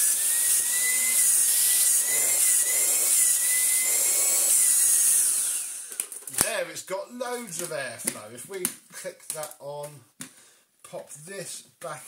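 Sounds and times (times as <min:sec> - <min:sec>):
vacuum cleaner motor whine: 0:00.0 - 0:05.9.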